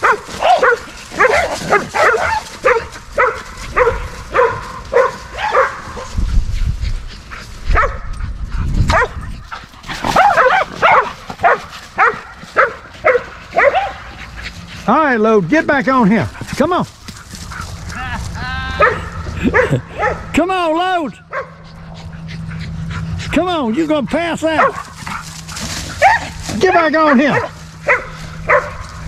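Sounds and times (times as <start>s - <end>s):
dog barking sharply: 0.0s - 6.1s, 8.9s - 9.2s, 10.1s - 14.0s, 18.8s - 20.3s, 27.3s - 28.8s.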